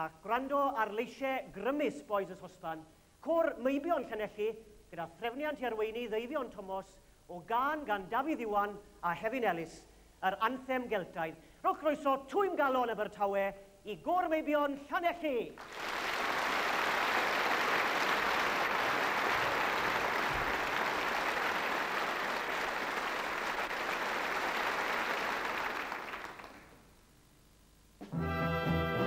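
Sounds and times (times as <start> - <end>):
audience applauding: 15.6 - 26.8
instrumental music: 28.0 - 29.0.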